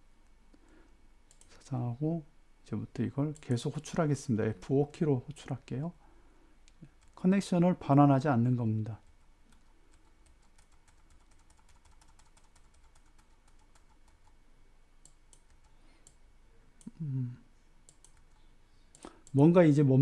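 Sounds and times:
short vocal murmur: 16.8s - 17.4s.

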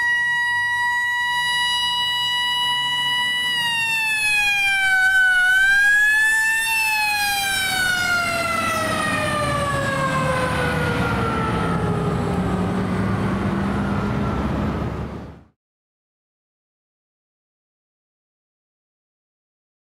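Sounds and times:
fire engine siren: 0.0s - 15.6s.

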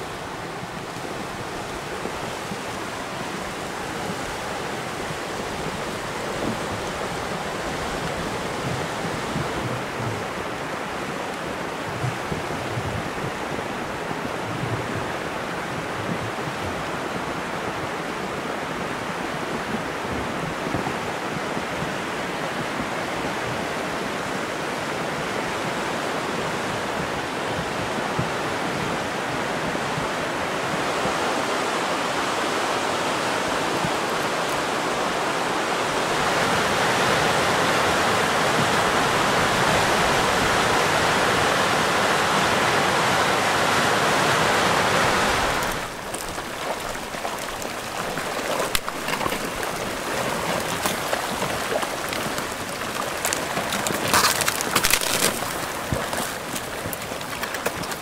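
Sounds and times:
flood water rushing: 0.0s - 58.0s
cracks of branches in debris: 45.6s - 58.0s.

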